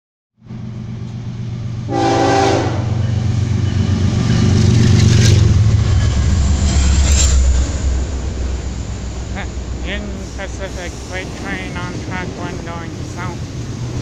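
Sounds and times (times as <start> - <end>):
locomotive engine rumble: 0.4 - 14.0
train horn blast: 1.9 - 3.0.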